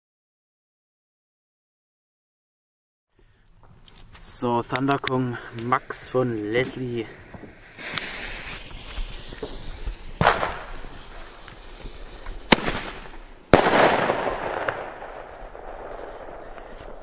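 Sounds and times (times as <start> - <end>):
firework tube hissing: 5.3 - 17.0
crackling fizz: 5.6 - 13.5
firework bangs: 5.6 - 17.0.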